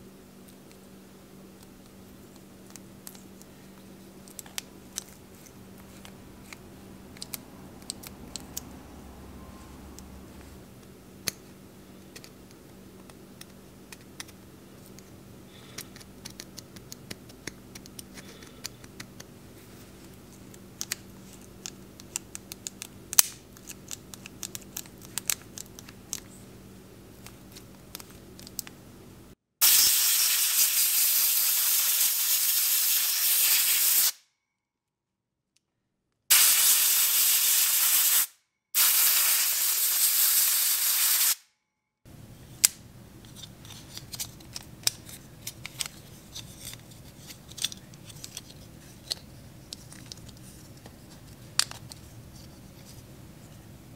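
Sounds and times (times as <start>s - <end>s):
hissing spray bursts: 29.6s - 34.2s, 36.3s - 41.4s.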